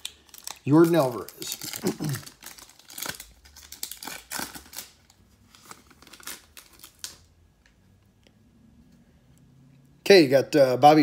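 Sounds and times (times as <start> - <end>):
foil wrapper crinkling: 0.0 - 7.3.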